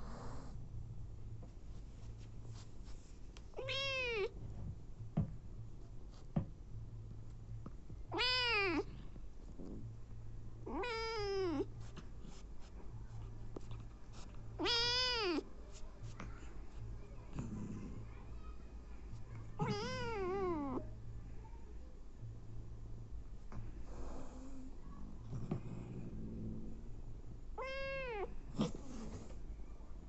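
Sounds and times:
cat meowing: 0:03.6 - 0:04.3, 0:08.1 - 0:08.9, 0:14.6 - 0:15.4, 0:19.6 - 0:20.8, 0:27.6 - 0:28.3.

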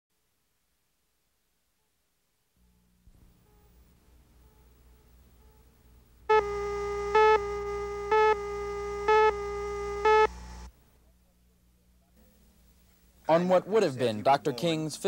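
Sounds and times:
electronic beeps: 0:06.3 - 0:10.4
steady electronic tone: 0:06.3 - 0:10.7.

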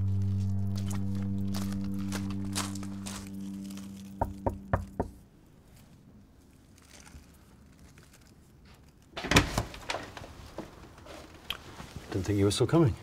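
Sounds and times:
low drone of film music: 0:00.0 - 0:05.0
knocking on a door: 0:04.2 - 0:05.2.

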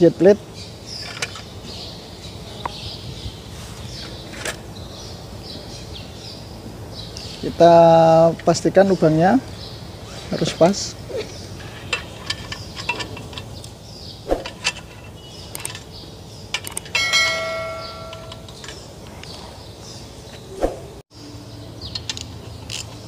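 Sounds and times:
metal clinks and knocks: 0:16.6 - 0:18.9
metal part ringing like a bell: 0:16.9 - 0:18.7.

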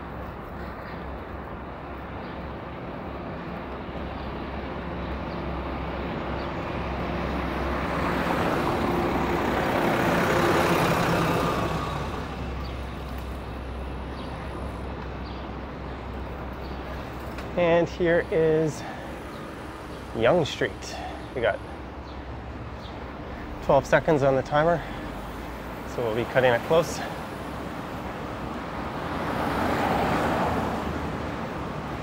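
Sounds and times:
low hum of city traffic: 0:00.0 - 0:32.0
vehicle passing by: 0:07.2 - 0:13.4.

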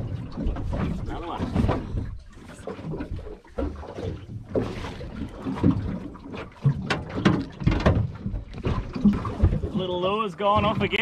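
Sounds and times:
water slapping against hull: 0:00.0 - 0:11.0
knocks and rattles: 0:06.6 - 0:11.0.

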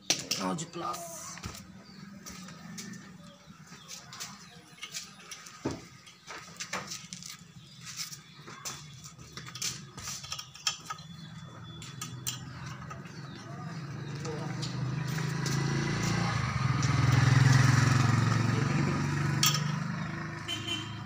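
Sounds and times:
metallic clicks and scrapes: 0:04.2 - 0:13.2.

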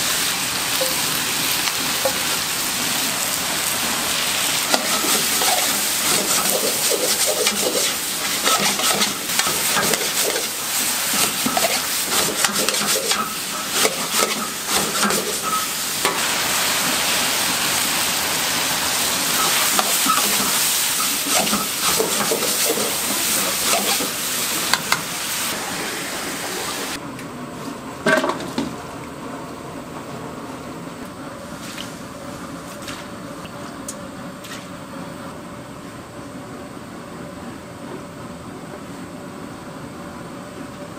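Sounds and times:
vegetables sizzling in wok: 0:00.0 - 0:27.0
kitchen noise: 0:00.7 - 0:03.0, 0:03.6 - 0:16.3, 0:19.0 - 0:25.6
metal ladle scraping pan: 0:04.7 - 0:15.7.

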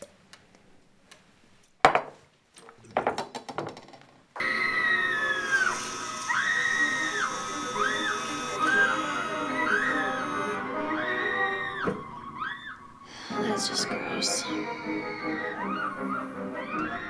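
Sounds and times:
glasses knocking on wood: 0:01.8 - 0:02.2, 0:03.0 - 0:04.1
horror film music: 0:04.4 - 0:17.0.

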